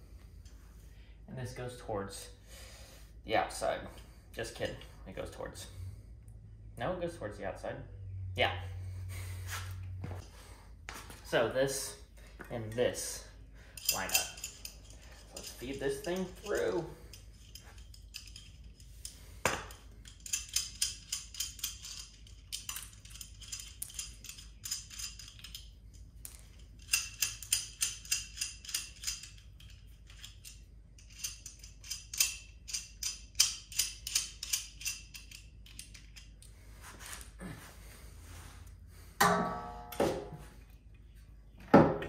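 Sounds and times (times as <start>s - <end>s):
ratchet wrench clicking: 26.8s - 36.3s.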